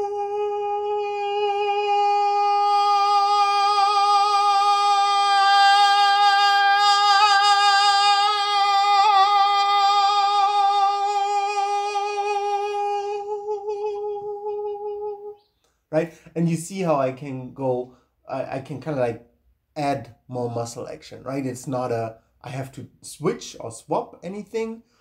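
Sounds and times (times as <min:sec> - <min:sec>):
man holding a sung note: 0:00.0 - 0:15.4.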